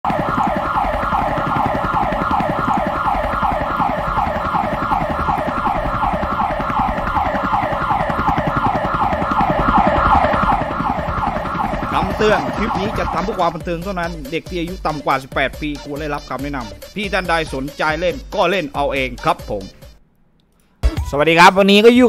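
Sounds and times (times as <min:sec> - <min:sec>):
police siren yelping: 0:00.0 - 0:14.2.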